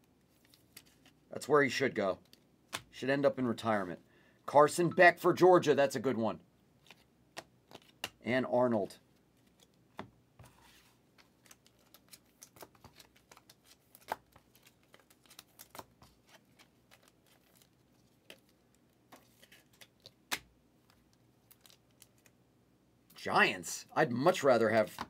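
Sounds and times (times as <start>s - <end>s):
cards clicking and rustling: 0.3s - 1.2s, 6.8s - 8.2s, 9.4s - 22.3s.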